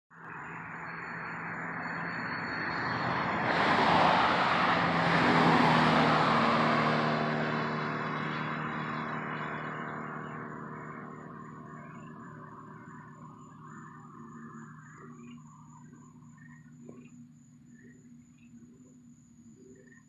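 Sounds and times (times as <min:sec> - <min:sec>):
car driving past: 0:00.6 - 0:15.8.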